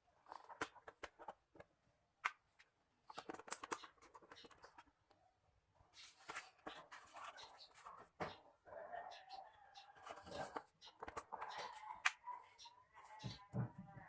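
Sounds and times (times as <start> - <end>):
plastic clicks and scrapes: 0.2 - 5.2, 9.2 - 13.4.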